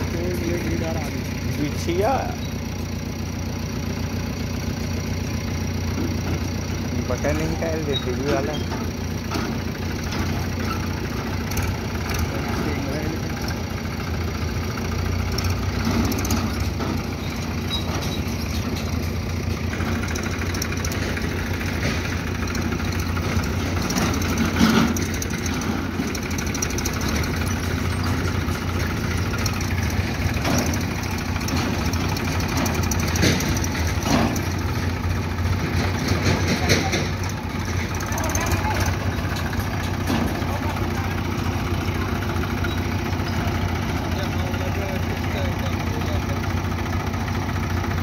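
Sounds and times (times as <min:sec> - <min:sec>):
diesel engines idling: 0:00.0 - 0:48.0
short clunks: 0:26.9 - 0:38.1.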